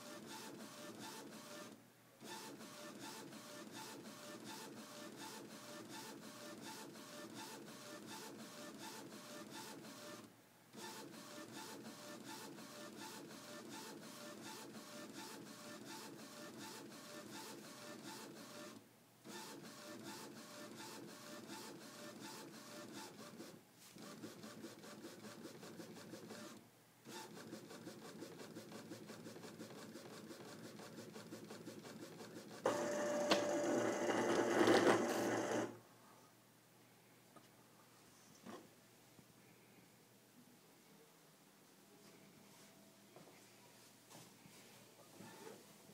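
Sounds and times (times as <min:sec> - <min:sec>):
printer carriage ticking whir: 0:24.1 - 0:35.8
printer tray motor whine: 0:32.7 - 0:35.8.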